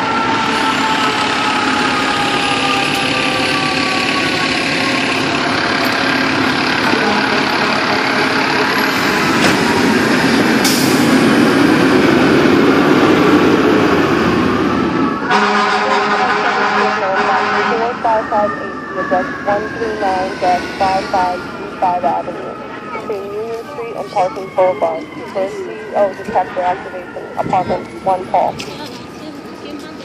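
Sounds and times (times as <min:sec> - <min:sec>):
siren winding down: 0:00.0 - 0:09.8, 0:16.6 - 0:28.5
fire truck diesel engines: 0:00.0 - 0:30.0.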